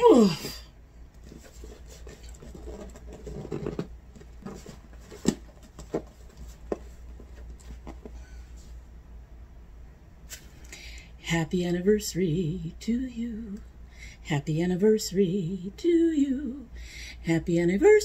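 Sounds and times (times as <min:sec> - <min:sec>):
cardboard rustling: 0:01.2 - 0:08.2.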